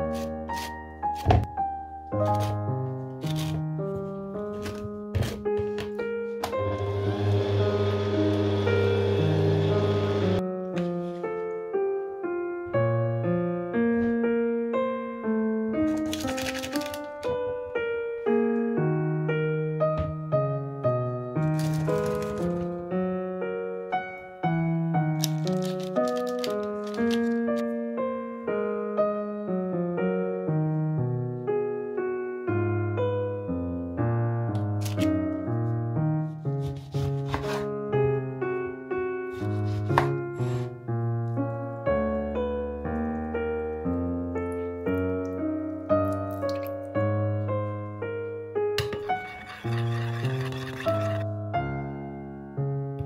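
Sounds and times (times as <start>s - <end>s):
slow solo piano melody: 0.0s - 36.6s, 37.7s - 49.1s, 51.2s - 53.0s
stand mixer motor running: 6.6s - 10.4s.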